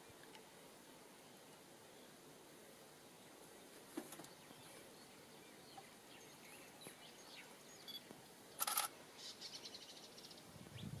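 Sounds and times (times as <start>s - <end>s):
bird chirps: 4.2s - 11.0s.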